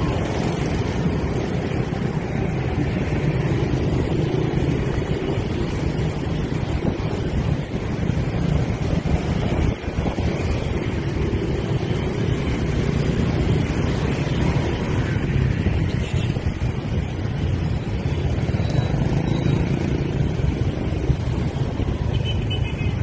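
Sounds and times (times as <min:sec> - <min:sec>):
wind buffeting microphone: 0:00.0 - 0:12.7
motor scooters running: 0:00.0 - 0:22.8.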